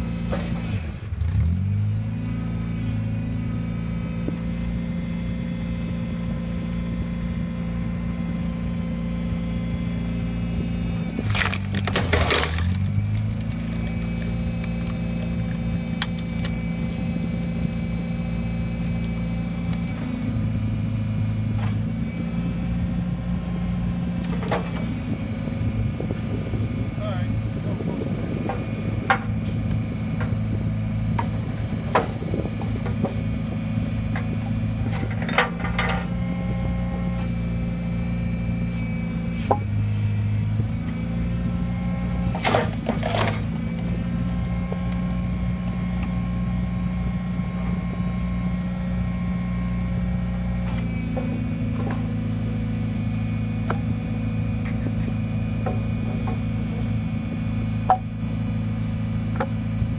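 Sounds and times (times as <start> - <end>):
engine running hydraulic pump: 0.0 - 59.9
hydraulic whine: 0.0 - 59.9
wood splitting cracks: 11.0 - 20.2, 24.0 - 24.9, 42.2 - 48.6.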